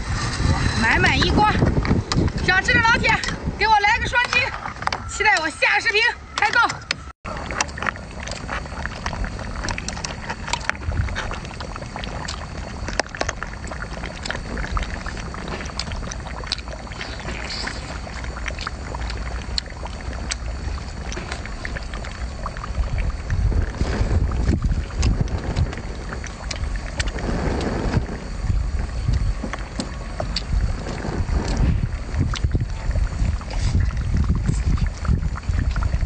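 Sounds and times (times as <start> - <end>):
wind rumble on microphone: 0.0 - 36.0
chewing shellfish: 7.3 - 36.0.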